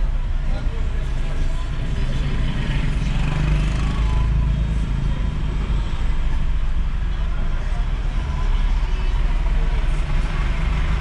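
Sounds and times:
faint street noise: 0:00.0 - 0:11.0.

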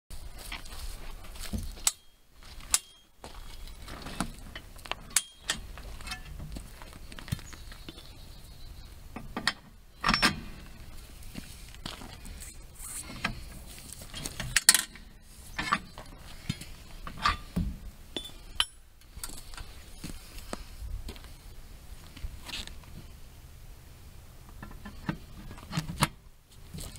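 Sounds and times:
metal clinks and clanks: 0:01.8 - 0:06.4, 0:09.4 - 0:10.7, 0:14.1 - 0:16.6, 0:18.2 - 0:19.7.

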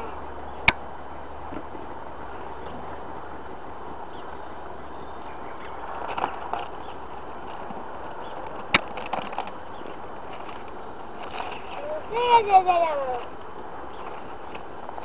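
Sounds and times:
bees humming: 0:00.0 - 0:15.0
sharp paper crack: 0:07.4 - 0:09.6, 0:10.3 - 0:12.0.

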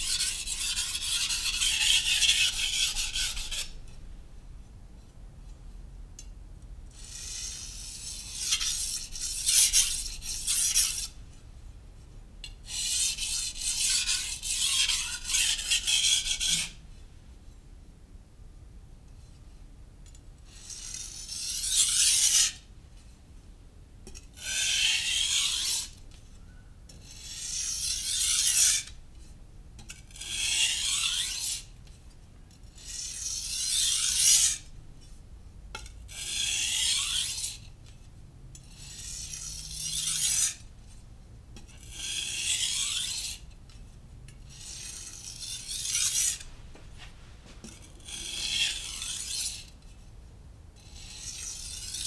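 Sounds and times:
knife grinding on whetstone: 0:00.0 - 0:03.8, 0:07.0 - 0:11.1, 0:12.7 - 0:16.8, 0:20.5 - 0:22.6, 0:24.1 - 0:26.0, 0:27.0 - 0:29.0, 0:29.9 - 0:31.6, 0:32.8 - 0:34.6, 0:35.8 - 0:37.6, 0:38.6 - 0:40.6, 0:41.6 - 0:43.8, 0:44.5 - 0:49.8, 0:50.8 - 0:52.0.

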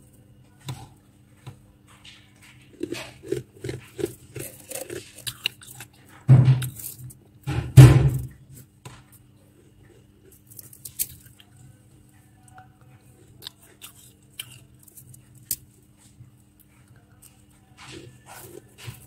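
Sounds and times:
low steady hum: 0:00.0 - 0:19.0
frost crunching: 0:02.0 - 0:07.3, 0:09.5 - 0:12.1.

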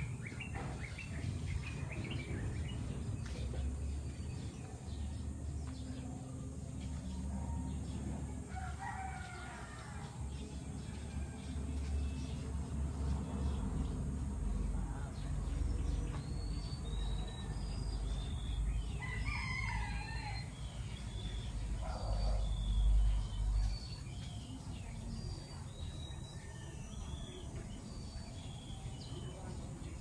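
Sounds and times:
rooster crowing: 0:08.5 - 0:12.0, 0:19.0 - 0:20.6.

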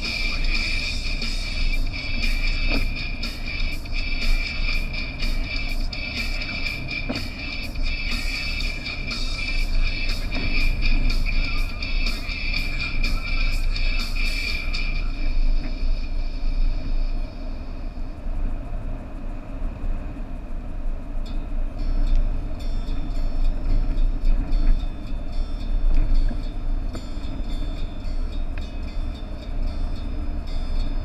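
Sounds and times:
music: 0:00.0 - 0:18.2, 0:21.2 - 0:31.0
tyre hiss on wet road: 0:00.0 - 0:18.4
vehicle engine and road rumble: 0:00.0 - 0:31.0.

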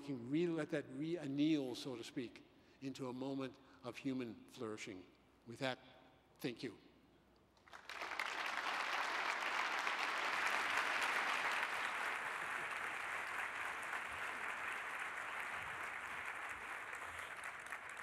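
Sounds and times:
audience applauding: 0:07.6 - 0:18.0.

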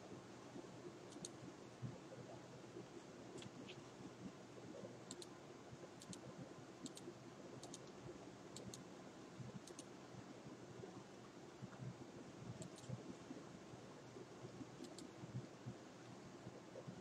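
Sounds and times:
low steady background hiss: 0:00.0 - 0:17.0
computer mouse clicks: 0:01.1 - 0:01.4, 0:05.1 - 0:05.4, 0:06.0 - 0:08.0, 0:08.6 - 0:08.8, 0:09.6 - 0:09.9, 0:12.6 - 0:13.0, 0:14.8 - 0:15.1.

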